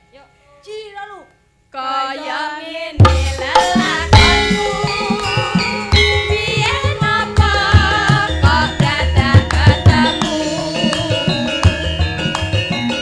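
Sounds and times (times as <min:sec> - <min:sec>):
drum strokes: 0:03.0 - 0:13.0
gamelan ensemble playing: 0:03.1 - 0:13.0.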